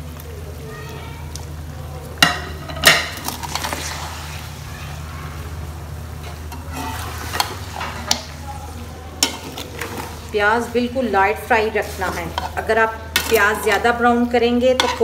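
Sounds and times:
meat sizzling in oil: 1.3s - 15.0s
metal spoon clacking against pot: 9.2s - 10.0s, 14.7s - 15.0s.

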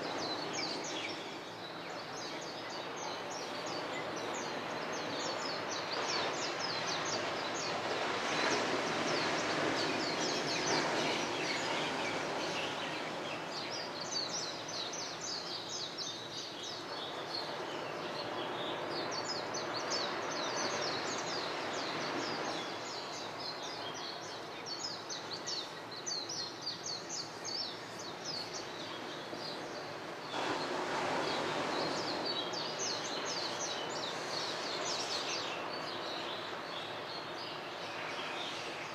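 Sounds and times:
surf rushing: 0.0s - 15.8s, 28.6s - 38.9s
birds chirping and twittering: 0.0s - 38.9s.

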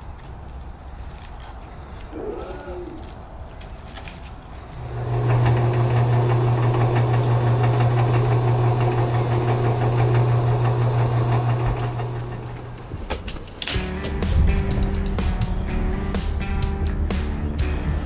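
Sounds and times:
electric motor humming: 4.8s - 13.0s.

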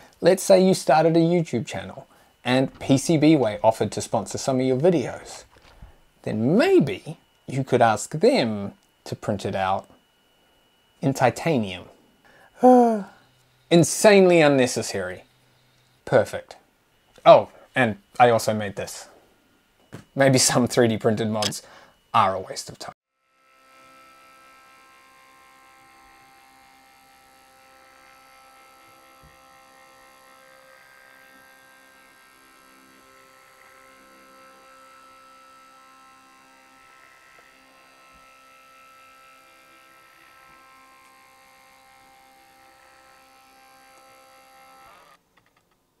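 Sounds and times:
printer motors whining: 23.7s - 45.2s.

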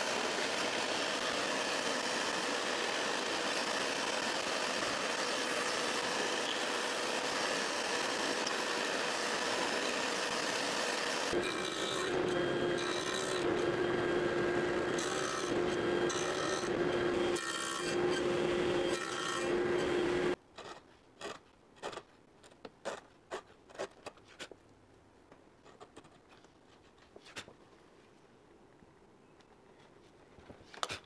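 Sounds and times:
table saw cutting wood: 0.0s - 20.4s.

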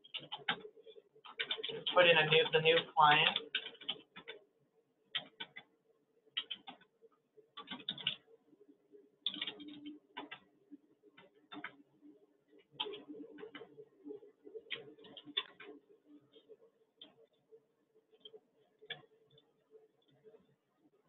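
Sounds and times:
low steady hum: 0.0s - 21.0s
keyboard keystrokes: 7.6s - 8.2s, 9.2s - 10.4s.

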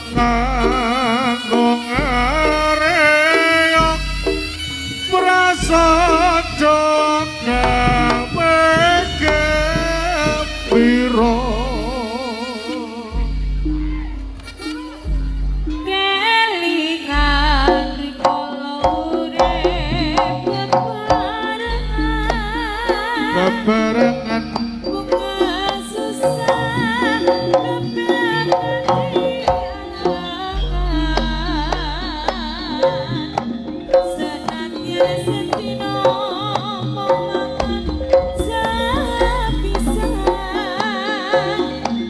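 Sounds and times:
sharp drum strokes: 0.0s - 16.4s, 17.1s - 42.0s
gamelan music: 0.0s - 42.0s
high wavering melody: 0.0s - 42.0s
metallophone tones: 0.0s - 42.0s
deep sustained bass notes: 3.8s - 16.1s, 19.0s - 20.6s.

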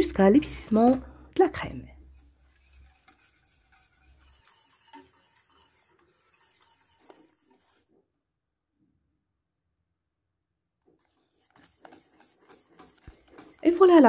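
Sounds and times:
wire whisk scraping a saucepan: 1.6s - 8.0s, 10.8s - 14.0s.

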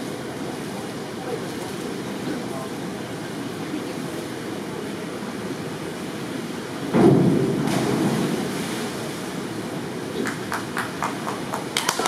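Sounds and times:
steady background noise: 0.0s - 12.0s
diver splashing into water: 7.0s - 9.6s.

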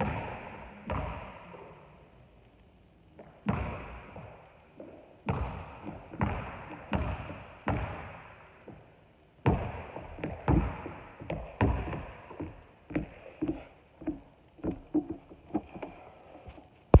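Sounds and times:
basketball bouncing on hardwood floor: 0.0s - 1.4s, 3.4s - 4.4s, 5.3s - 8.8s, 9.4s - 15.6s.

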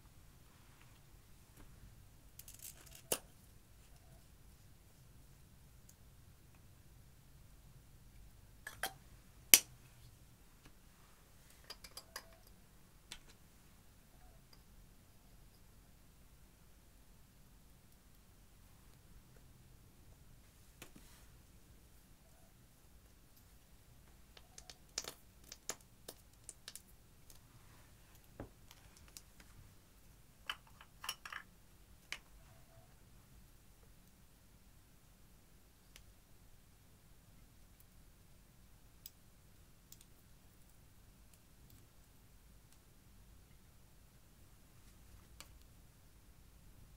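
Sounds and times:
plastic tubes tapping on glass: 11.7s - 12.5s.

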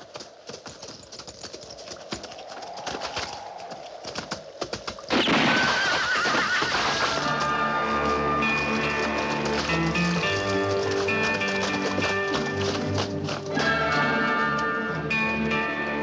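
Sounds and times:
horse hooves galloping: 0.0s - 16.0s
horse whinny: 5.3s - 7.4s.

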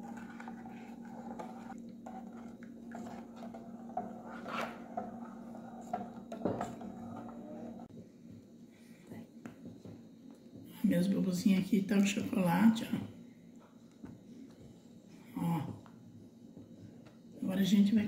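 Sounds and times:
spoon stirring in saucepan: 0.0s - 7.9s
steady low hum: 0.0s - 18.0s.

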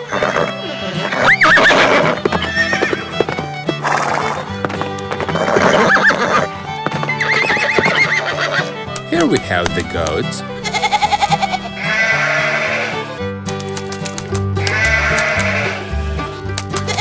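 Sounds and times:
horse neighing: 0.0s - 3.2s, 3.8s - 4.4s, 5.3s - 6.5s, 7.1s - 8.8s, 10.6s - 13.1s, 14.6s - 15.9s
hoofbeats clip-clopping: 0.0s - 11.8s, 13.5s - 17.0s
background music: 0.0s - 17.0s.

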